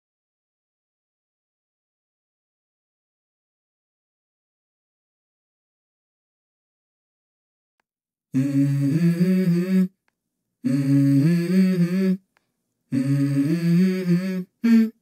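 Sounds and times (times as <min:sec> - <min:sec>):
person humming a melody: 0:08.4 - 0:10.0, 0:10.6 - 0:12.3, 0:12.9 - 0:15.0.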